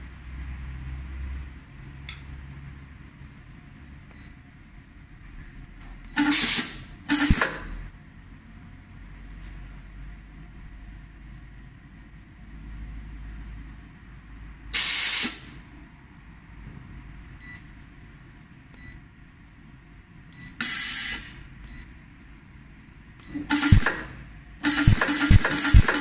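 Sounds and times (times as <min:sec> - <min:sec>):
short electronic beeps: 0:04.1 - 0:04.4, 0:20.3 - 0:21.1, 0:21.7 - 0:21.9
compressed air hiss: 0:06.2 - 0:07.4, 0:14.7 - 0:15.6, 0:20.6 - 0:21.4, 0:23.5 - 0:23.9, 0:24.6 - 0:26.0.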